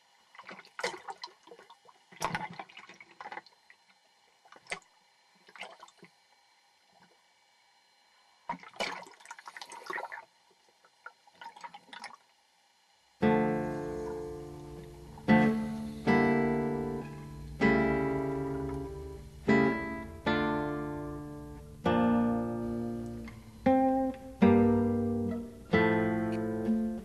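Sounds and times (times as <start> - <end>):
water splashing: 0.2 - 6.2, 8.4 - 12.3.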